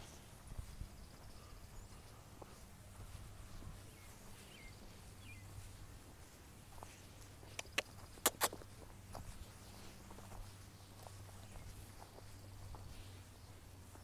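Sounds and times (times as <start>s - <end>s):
faint bird chirps: 0.0s - 5.7s
sharp clicks: 7.5s - 8.6s.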